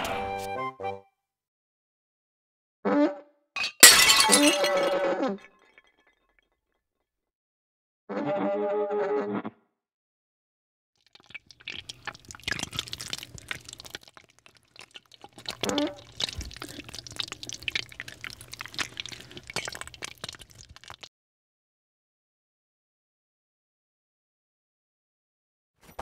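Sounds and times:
broth bubbling and popping: 0:11.0 - 0:21.1.

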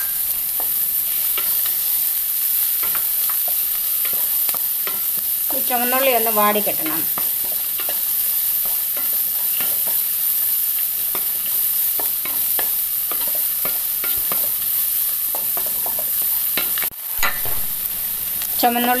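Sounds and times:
shallots sizzling in oil: 0:00.0 - 0:19.0.

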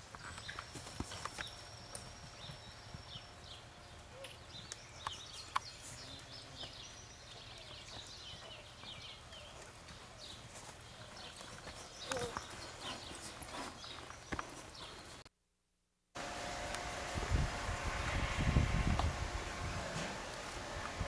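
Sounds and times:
horse hooves thudding on dirt: 0:00.0 - 0:15.2
steady low rumble: 0:16.5 - 0:21.0.

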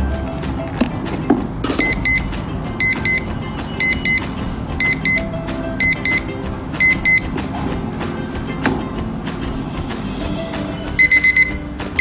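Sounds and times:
background music: 0:00.0 - 0:12.0
alarm clock beeping: 0:01.8 - 0:07.3, 0:11.0 - 0:12.0.

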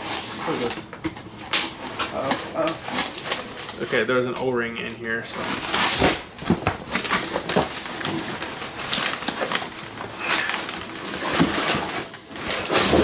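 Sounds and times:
packing paper crinkling: 0:00.0 - 0:13.0
cardboard scraping: 0:05.3 - 0:13.0.

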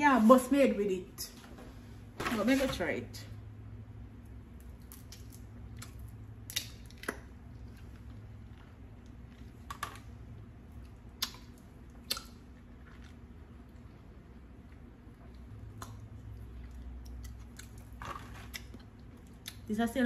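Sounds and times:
clicks and crunches of food: 0:04.5 - 0:13.8.

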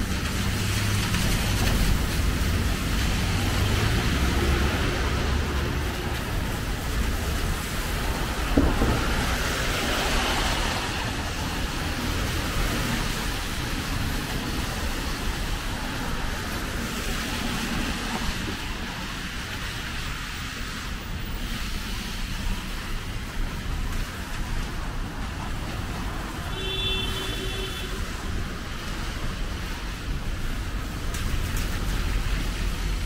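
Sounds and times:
tyres hissing on wet asphalt: 0:00.0 - 0:33.0.

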